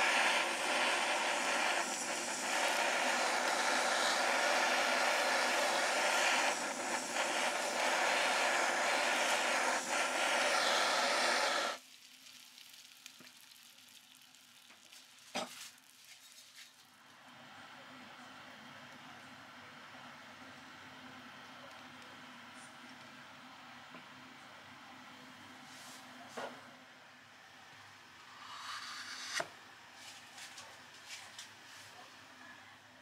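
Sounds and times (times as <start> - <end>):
blowtorch flame hissing: 0.0 - 11.8, 28.2 - 29.5.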